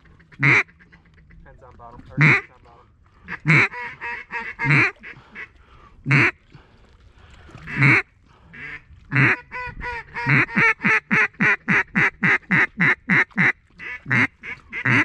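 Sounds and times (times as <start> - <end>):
duck call quacks: 0.0 - 1.4, 2.2 - 2.6, 3.3 - 5.5, 8.6 - 15.0.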